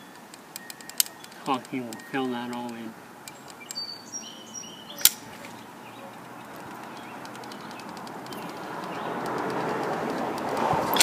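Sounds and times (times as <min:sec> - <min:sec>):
sharp click: 0:00.1 - 0:03.8, 0:05.0 - 0:11.0
short high bird chirps: 0:03.3 - 0:06.2.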